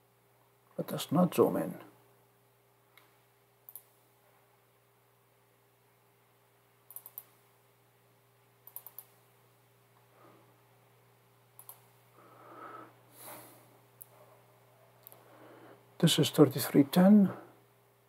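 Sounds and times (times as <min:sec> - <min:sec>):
low electrical hum: 0:00.0 - 0:18.0
faint computer mouse clicks: 0:02.9 - 0:04.0, 0:06.9 - 0:07.4, 0:08.6 - 0:09.2, 0:11.6 - 0:11.9.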